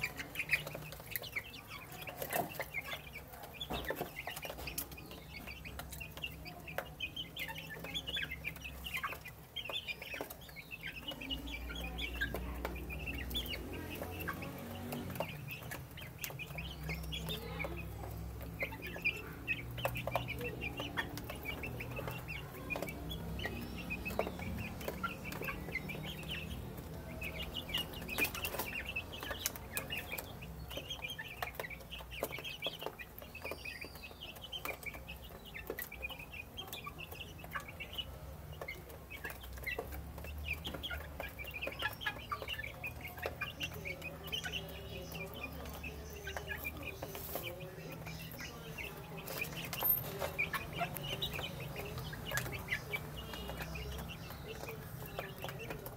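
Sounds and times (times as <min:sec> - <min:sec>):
beaks pecking metal dish: 0:00.0 - 0:55.9
chicks peeping and chirping: 0:00.0 - 0:55.9.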